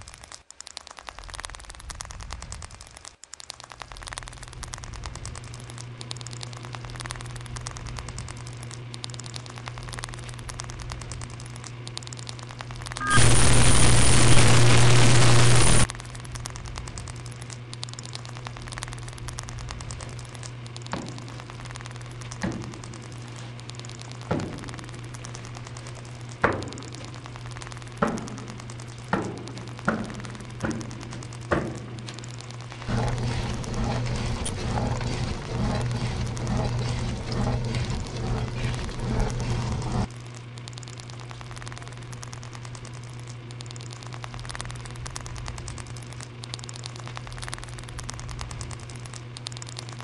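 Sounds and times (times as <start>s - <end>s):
electronic static crackling: 0.0s - 50.0s
rapid faint ticking: 0.0s - 50.0s
steady low hum: 0.0s - 50.0s
loud hiss: 13.0s - 15.8s
thin high whine: 13.0s - 15.9s.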